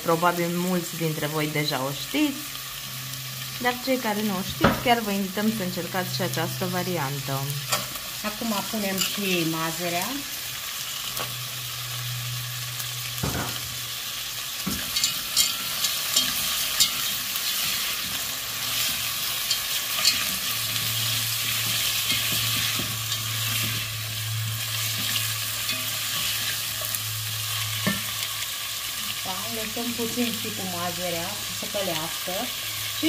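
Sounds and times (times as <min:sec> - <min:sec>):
vegetables sizzling in hot oil: 0:00.0 - 0:33.0
spatula scraping and tapping pan: 0:14.6 - 0:18.2, 0:18.8 - 0:24.0.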